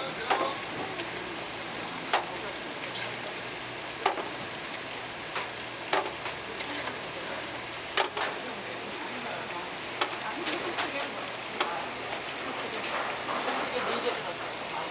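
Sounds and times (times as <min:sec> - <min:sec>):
meat patties sizzling on griddle: 0:00.0 - 0:14.9.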